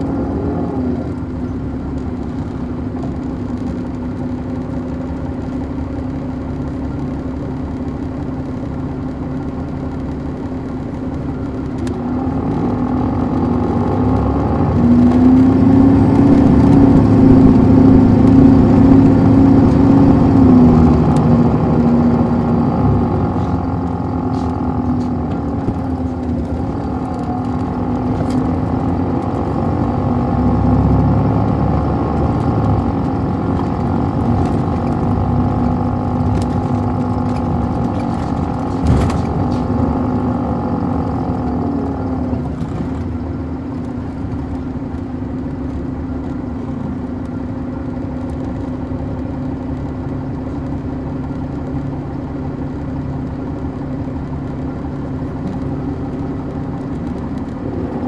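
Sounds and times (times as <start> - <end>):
bus diesel engine pulling away: 12.1 - 43.5.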